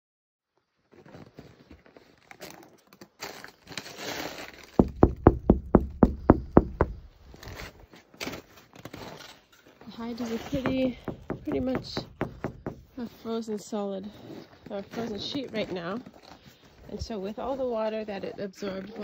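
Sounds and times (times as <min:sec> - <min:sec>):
knuckles rapping on frozen hide: 0:04.8 - 0:07.3, 0:10.4 - 0:13.0.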